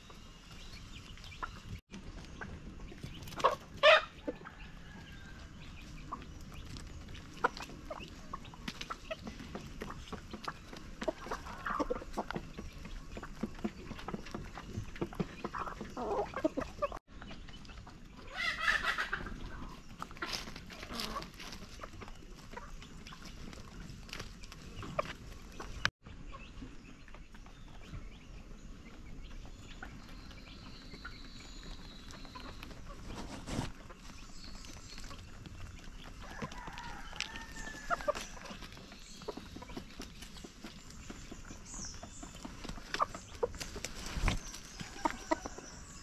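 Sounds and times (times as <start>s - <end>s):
chickens clucking: 0.0s - 46.0s
loud chicken call: 18.3s - 19.3s.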